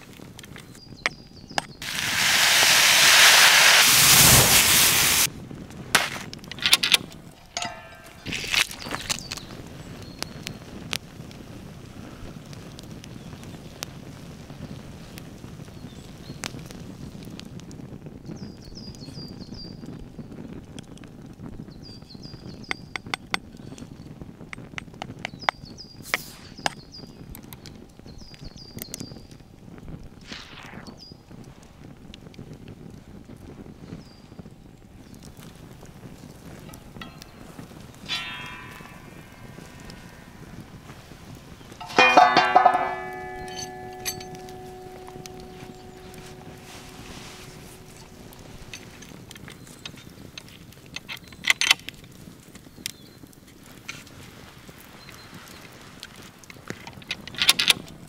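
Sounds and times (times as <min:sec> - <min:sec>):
campfire crackling and popping: 0:00.0 - 0:58.0
fire hissing burst: 0:01.8 - 0:05.3, 0:30.2 - 0:31.1
prawns sizzling: 0:01.8 - 0:05.3, 0:07.0 - 0:09.3, 0:35.5 - 0:50.2
wooden branches knocking on metal: 0:06.0 - 0:09.2, 0:36.6 - 0:49.1
bird high notes: 0:36.7 - 0:49.1.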